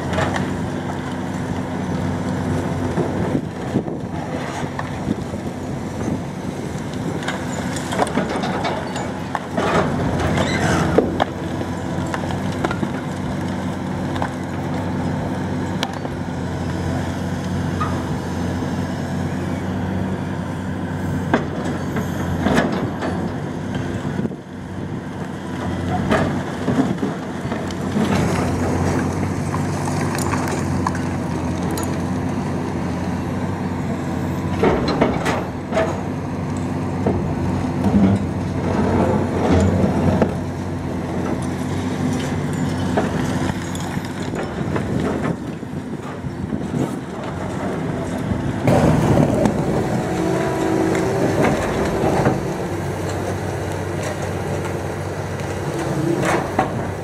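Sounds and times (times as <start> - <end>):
concrete cracking and crunching: 0.0 - 17.6, 25.2 - 32.5, 37.8 - 57.0
excavator diesel engine running: 0.0 - 57.0.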